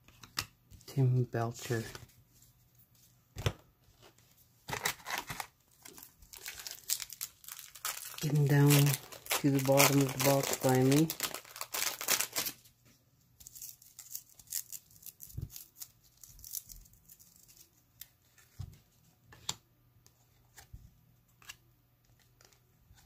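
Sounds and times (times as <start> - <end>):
cards clicking and rustling: 4.7 - 12.6
wrapper crinkling and tearing: 4.7 - 12.7, 13.4 - 17.8.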